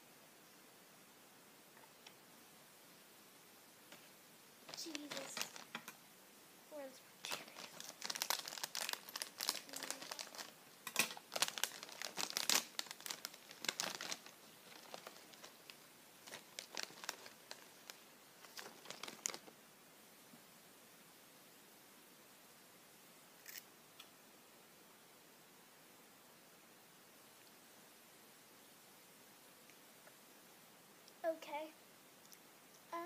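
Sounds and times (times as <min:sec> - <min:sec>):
plastic snack bag crinkling: 0:04.7 - 0:06.0, 0:07.2 - 0:19.5.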